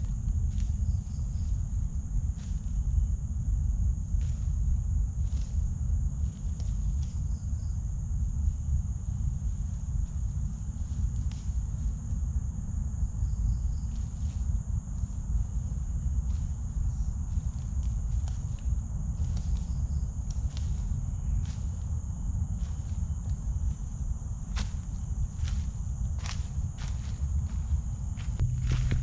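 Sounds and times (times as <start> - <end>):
forest insects droning: 0.0 - 29.0
low rumble: 7.8 - 29.0.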